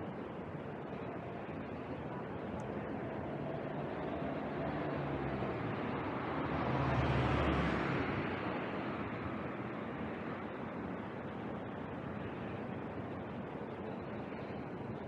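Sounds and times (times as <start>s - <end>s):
vehicle passing by: 3.9s - 8.4s.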